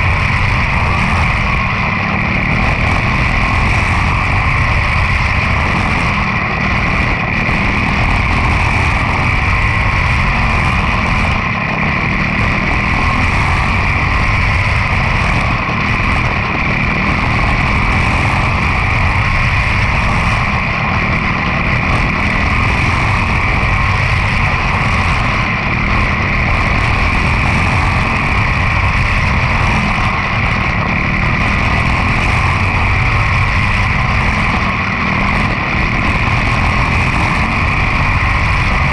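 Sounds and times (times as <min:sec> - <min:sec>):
race car engine running: 0:00.0 - 0:38.9.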